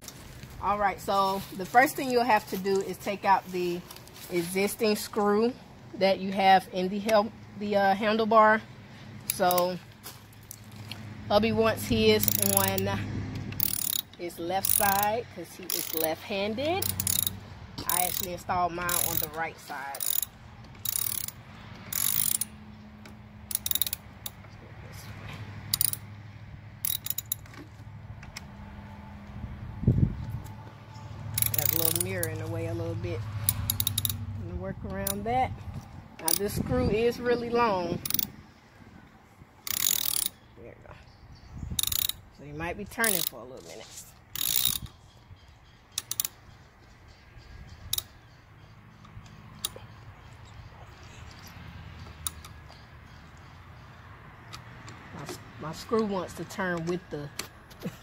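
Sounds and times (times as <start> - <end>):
hand ratchet clicking: 9.2 - 9.8, 11.9 - 24.4, 25.7 - 26.0, 26.8 - 27.6, 31.3 - 32.5, 33.4 - 34.3, 36.2 - 36.6, 38.0 - 38.4, 39.6 - 40.4, 41.8 - 42.2, 43.0 - 43.4, 44.3 - 45.0, 45.9 - 46.4, 47.9 - 48.2, 49.0 - 49.8, 52.0 - 52.8
scattered clicks: 16.8 - 24.5, 31.3 - 32.5, 33.4 - 34.2, 45.9 - 46.5, 51.3 - 53.5.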